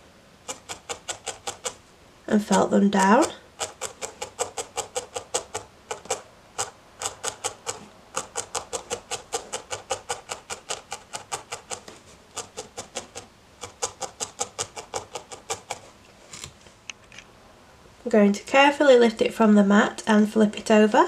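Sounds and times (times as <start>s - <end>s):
felting needle puncturing wool: 0.4s - 1.8s, 2.5s - 15.9s.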